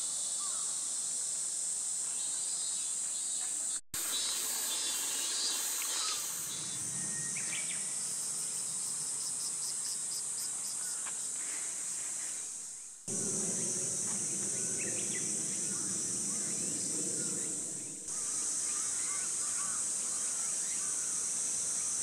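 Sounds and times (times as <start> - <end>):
insect chorus: 0.0 - 22.0
pulsed insect chirps: 4.0 - 11.0, 13.1 - 22.0.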